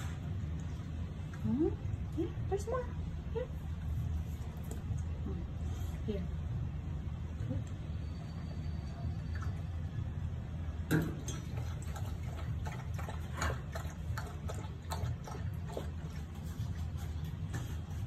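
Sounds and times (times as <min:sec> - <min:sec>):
steady low hum: 0:00.0 - 0:18.0
dog eating from bowl: 0:08.3 - 0:10.1, 0:10.9 - 0:18.0.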